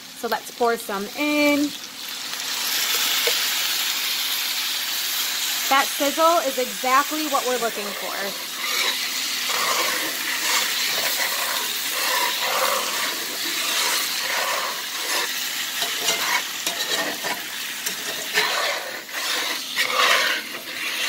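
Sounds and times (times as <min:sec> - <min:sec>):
water sizzling in a hot skillet: 0:00.0 - 0:21.0
spatula scraping a pan: 0:06.9 - 0:21.0.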